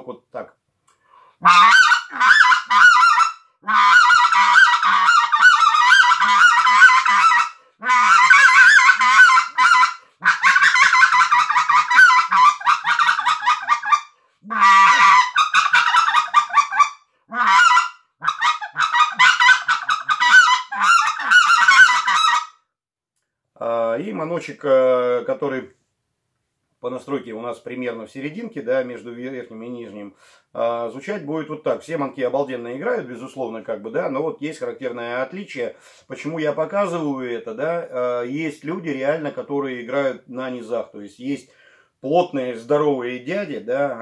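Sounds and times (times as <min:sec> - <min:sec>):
goose call honks and clucks: 0:01.4 - 0:22.6.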